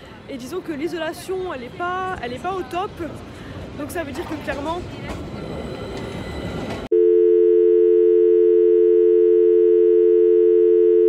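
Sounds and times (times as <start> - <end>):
street noise: 0.0 - 6.9
tram passing: 0.0 - 6.9.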